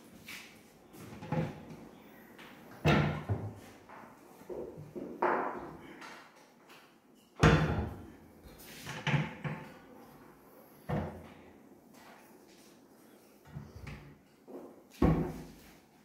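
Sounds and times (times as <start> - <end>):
cabinet doors knocking and banging: 2.8 - 3.6, 7.4 - 8.0, 15.0 - 15.5.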